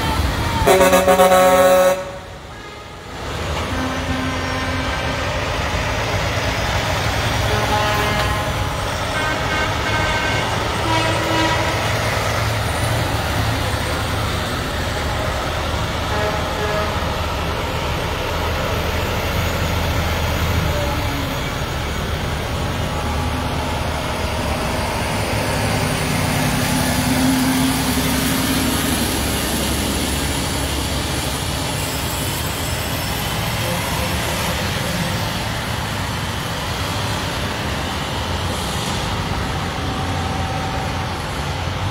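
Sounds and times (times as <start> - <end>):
truck horns sounding: 0.0 - 5.7, 7.3 - 12.4, 15.9 - 17.6
heavy diesel engines running: 0.0 - 41.9
low horn blast: 0.6 - 5.3, 7.4 - 12.0, 16.1 - 17.3.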